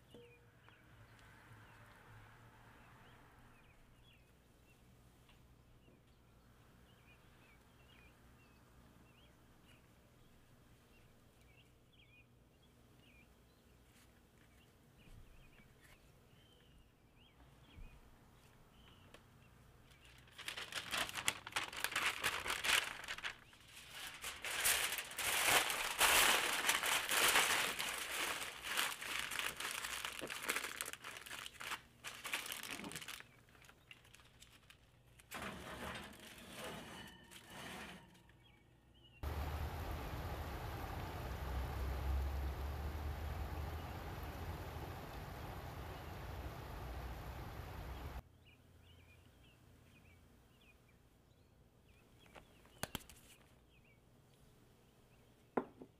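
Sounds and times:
aluminium foil crinkling: 19.9 - 36.4.

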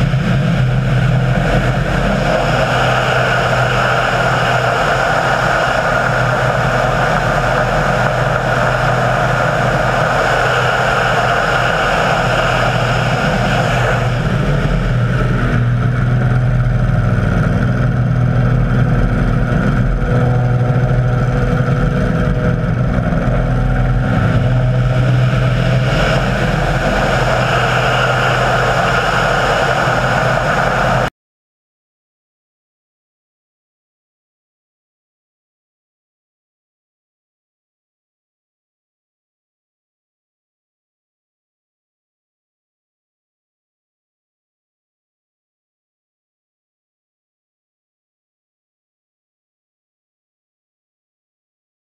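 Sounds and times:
model aircraft engine running: 0.0 - 31.1.

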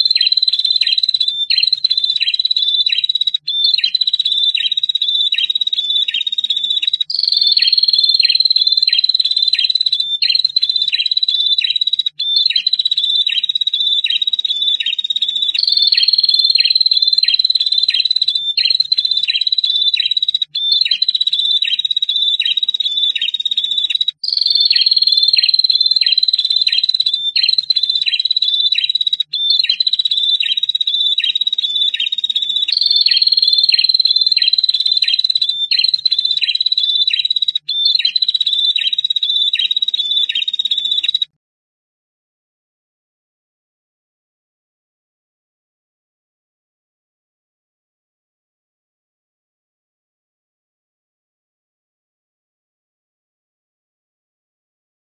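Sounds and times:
bird trilling with chips: 13.8 - 41.2.

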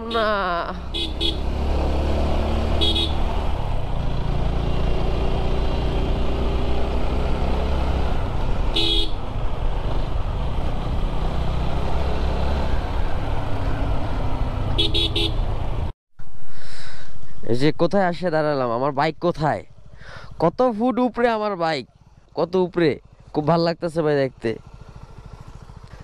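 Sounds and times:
motorcycle engine running: 0.0 - 15.9, 19.4 - 26.0
short horn beeps: 2.8 - 3.2.

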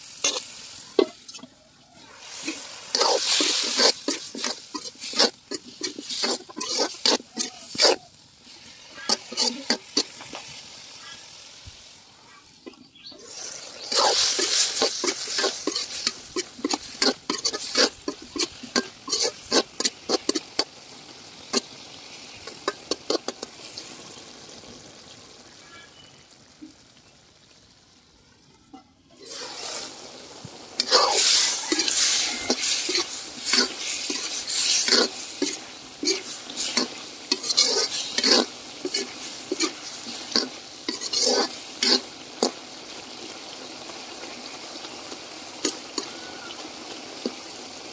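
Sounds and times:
vegetables sizzling in oil: 0.0 - 47.9
metal spatula scraping a pan: 0.2 - 1.5, 2.2 - 10.8, 13.3 - 20.7, 21.3 - 23.9, 29.2 - 30.0, 30.8 - 42.6.

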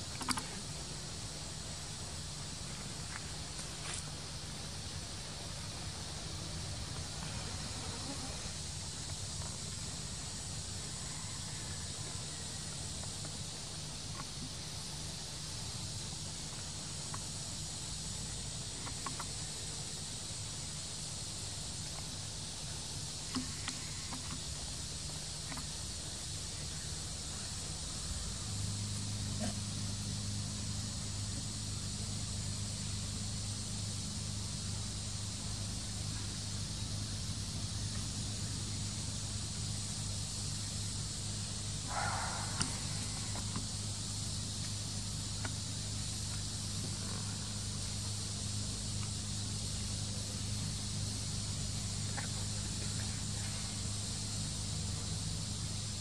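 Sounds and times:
insects buzzing: 0.0 - 56.0
faint clicks: 41.9 - 43.7.

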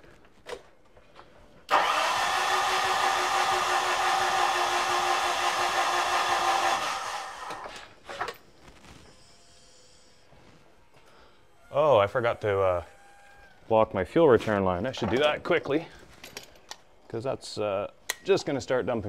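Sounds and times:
starter motor cranking engine: 1.7 - 8.0.

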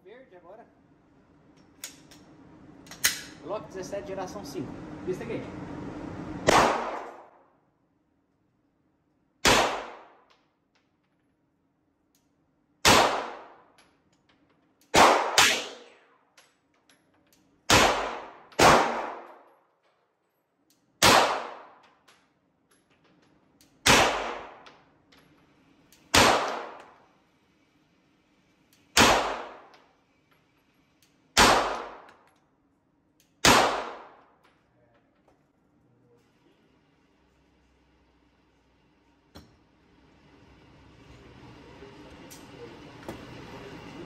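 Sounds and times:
pistol shots indoors: 6.4 - 7.7, 9.4 - 11.1, 12.0 - 16.7, 17.4 - 22.4, 23.6 - 25.0, 25.9 - 27.1, 28.8 - 30.0, 31.0 - 32.4, 33.2 - 34.6.

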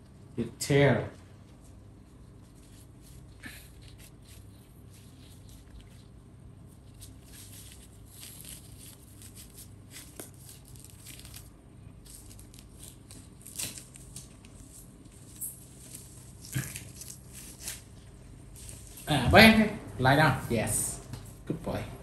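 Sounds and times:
diaper rustling and crinkling: 1.5 - 19.2.

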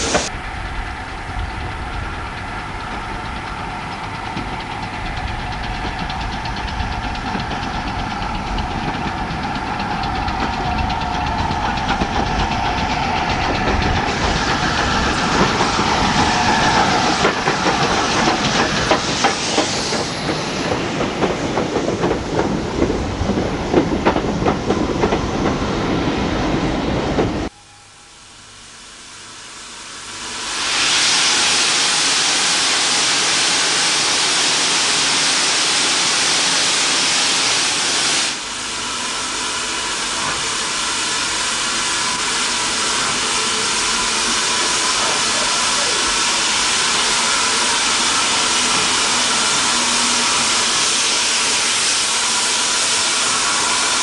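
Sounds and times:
hiss of escaping steam: 0.0 - 0.3, 7.2 - 21.9, 29.8 - 54.0
train wheels clickety-clack: 0.0 - 27.5, 39.3 - 54.0.

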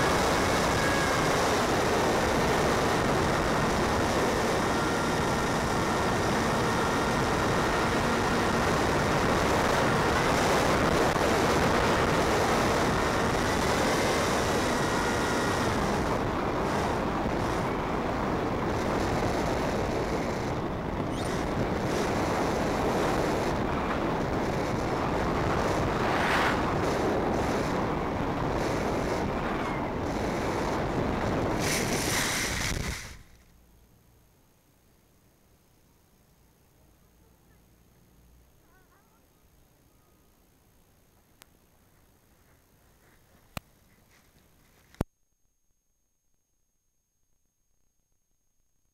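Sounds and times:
electric motor whine: 0.0 - 33.3
rushing airflow: 18.6 - 33.2.

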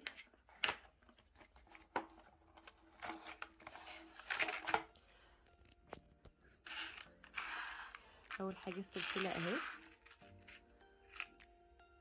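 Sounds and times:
plastic tray scraping and rustling: 8.6 - 10.2.

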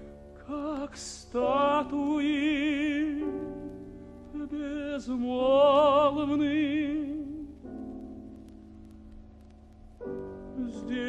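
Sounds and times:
piano accompaniment: 0.0 - 11.0
tenor singing with vibrato: 4.3 - 7.6.

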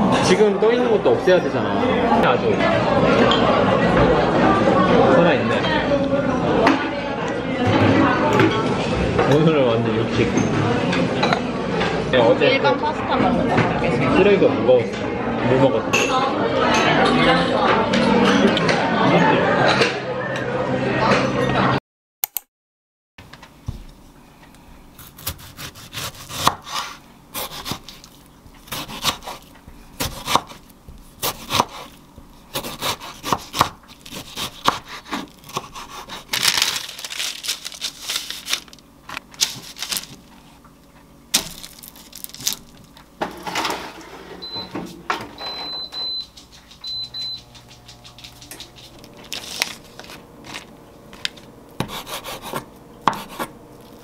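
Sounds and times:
knife cutting on wooden board: 25.0 - 36.3, 51.8 - 53.6.

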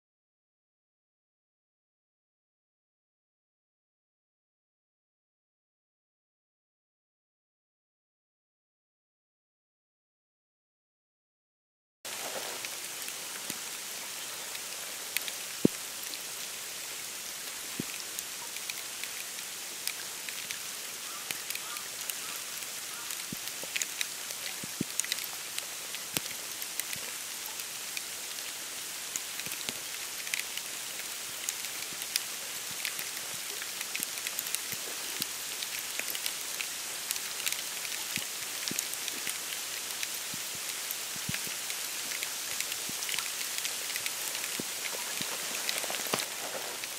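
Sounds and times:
wet snow pattering on reeds: 12.1 - 46.9.

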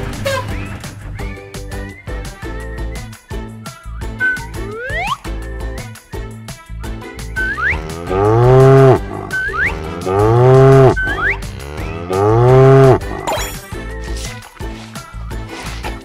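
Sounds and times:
cow mooing: 7.6 - 13.3.

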